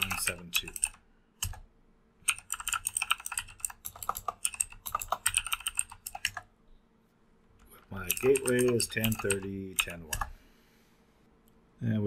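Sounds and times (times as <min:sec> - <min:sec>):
typing on a keyboard: 0:00.0 - 0:01.6, 0:02.3 - 0:06.5, 0:08.0 - 0:10.4.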